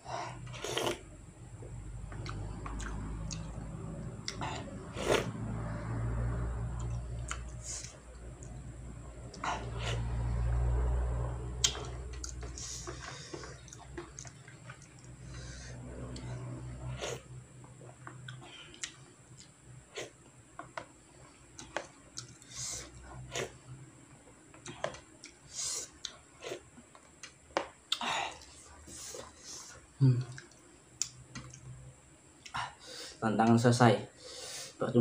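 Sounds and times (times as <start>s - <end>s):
chewing and slurping: 0.3s - 1.0s, 2.0s - 5.4s, 11.6s - 20.2s, 21.6s - 23.6s.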